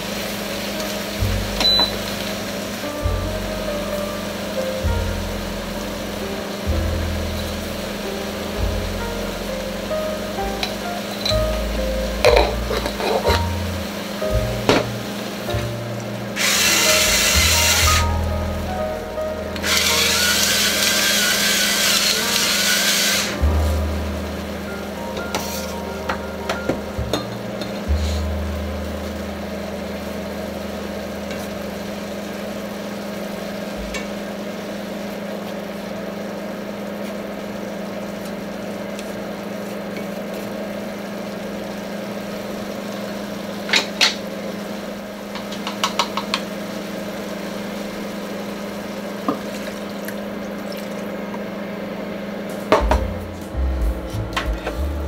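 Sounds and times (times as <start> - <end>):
steady kitchen hum: 0.0 - 55.0
utensils clinking on cookware: 10.6 - 11.5, 12.2 - 13.6, 45.4 - 46.4.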